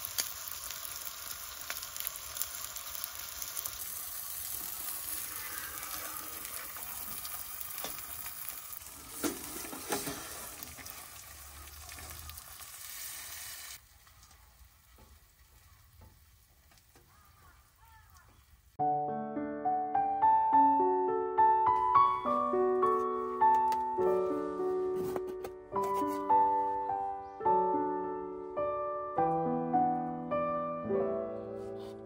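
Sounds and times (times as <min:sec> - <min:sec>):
meat sizzling: 0:00.0 - 0:18.8.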